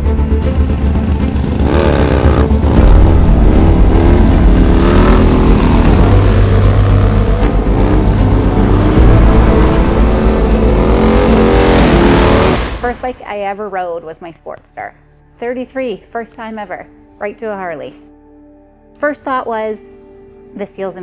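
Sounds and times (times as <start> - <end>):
motorcycle engine revving: 0.4 - 12.9.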